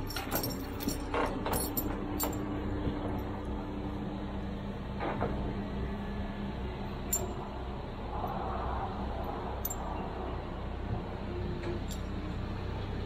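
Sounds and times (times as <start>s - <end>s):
metal clinks and knocks: 0.0s - 2.5s, 9.6s - 9.9s, 11.7s - 12.2s
diesel engine idling: 0.0s - 13.0s.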